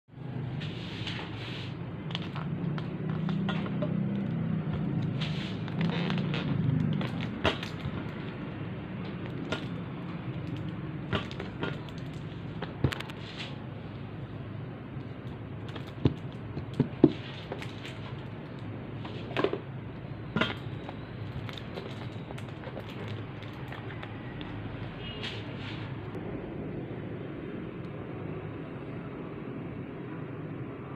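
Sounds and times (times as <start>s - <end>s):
steady low hum: 23.2s - 30.9s.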